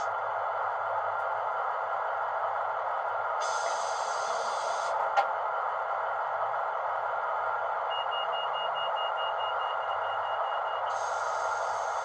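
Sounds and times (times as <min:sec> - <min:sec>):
diesel engine idling from speaker: 0:07.8 - 0:12.0.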